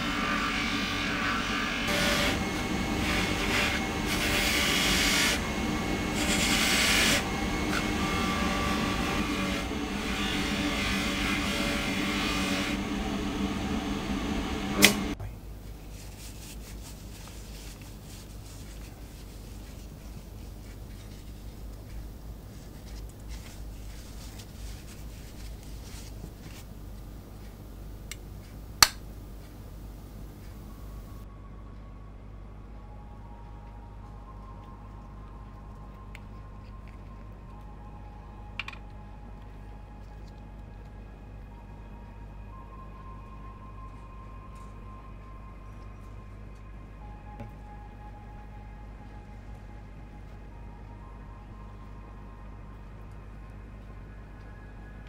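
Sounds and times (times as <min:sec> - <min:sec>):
small electric tool motor running: 0:01.9 - 0:13.5.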